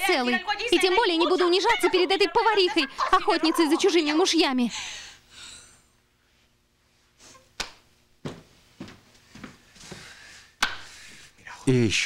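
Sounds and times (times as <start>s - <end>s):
footsteps on a hard floor: 8.2s - 10.2s.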